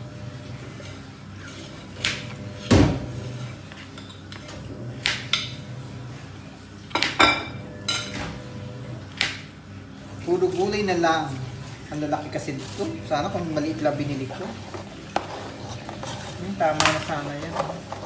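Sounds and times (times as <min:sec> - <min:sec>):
knife and dishes clinking: 0:06.9 - 0:08.3.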